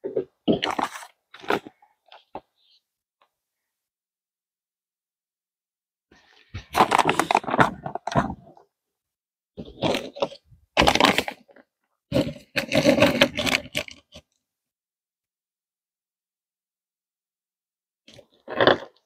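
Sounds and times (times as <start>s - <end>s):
hard plastic parts crunching: 0.0s - 2.4s, 6.6s - 8.6s, 9.6s - 14.2s.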